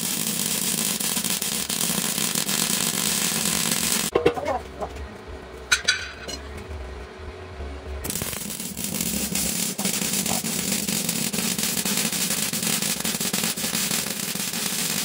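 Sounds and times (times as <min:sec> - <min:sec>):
welding arc crackling and sizzling: 0:00.0 - 0:04.1, 0:08.0 - 0:15.0
low hum: 0:04.5 - 0:11.0.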